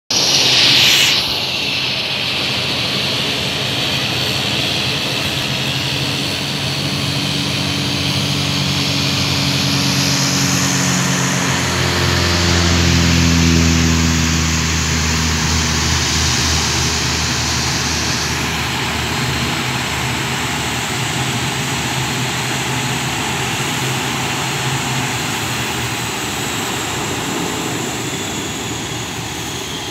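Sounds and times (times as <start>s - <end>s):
wide hiss: 0.1s - 4.0s
propeller plane engine drone: 0.1s - 29.9s.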